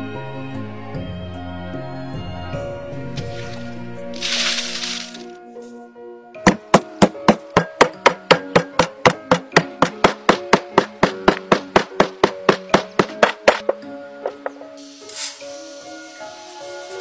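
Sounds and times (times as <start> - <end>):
soft background music: 0.0 - 17.0
pestle pounding in stone mortar: 6.4 - 14.7.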